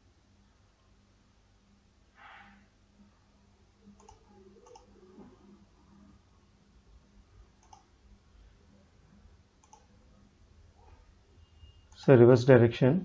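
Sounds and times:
low room hum: 0:00.0 - 0:13.0
computer mouse clicks: 0:03.9 - 0:04.9, 0:07.6 - 0:07.9, 0:09.6 - 0:09.9.

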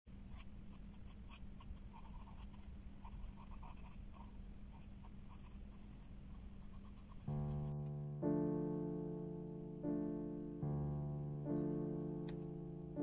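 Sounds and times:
steady low hum: 0:00.1 - 0:13.0
pencil scratching on paper: 0:00.3 - 0:07.7.

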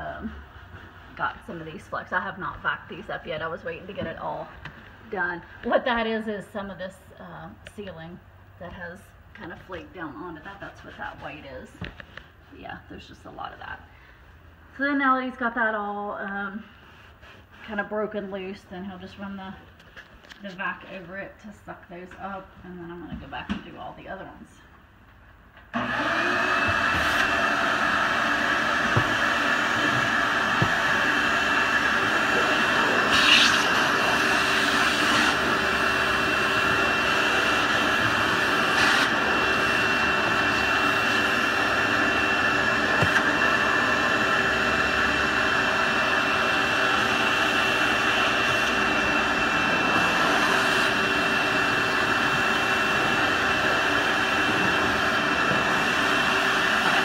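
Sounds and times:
vacuum cleaner running: 0:00.0 - 0:06.9, 0:08.7 - 0:12.0, 0:25.7 - 0:57.0.

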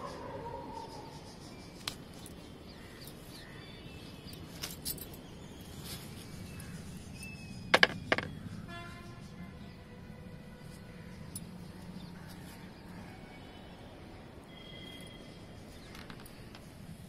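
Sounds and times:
faint bird chirps: 0:11.0 - 0:16.6.

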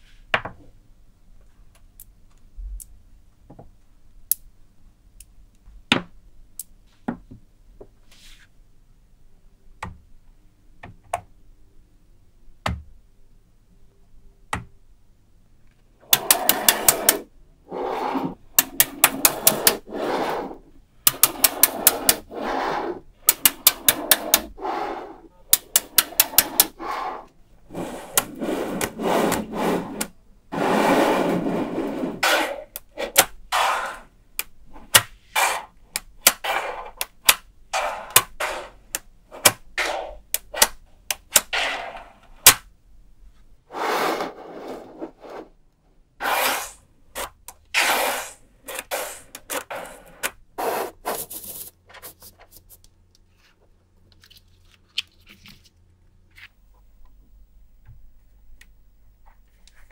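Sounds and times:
magnetic balls rattling and scraping: 0:16.0 - 0:34.1, 0:47.6 - 0:52.9
magnetic balls clicking together: 0:25.5 - 0:26.8.

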